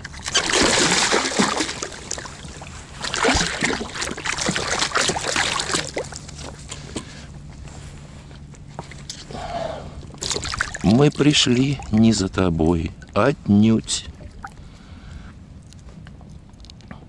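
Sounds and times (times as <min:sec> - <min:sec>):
fish thrashing splashing water: 0:00.0 - 0:06.6, 0:10.1 - 0:12.2.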